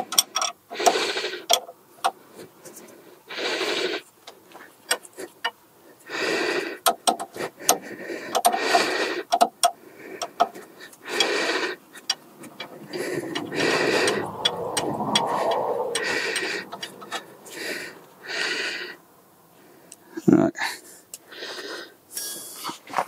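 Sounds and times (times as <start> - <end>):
person breathing heavily: 5.1 - 20.0, 20.6 - 22.6.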